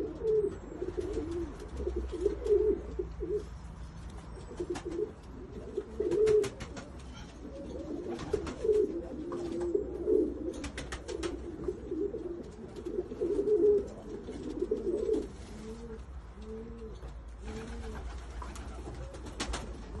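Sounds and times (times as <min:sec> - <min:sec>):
pigeons cooing: 0:00.0 - 0:20.0.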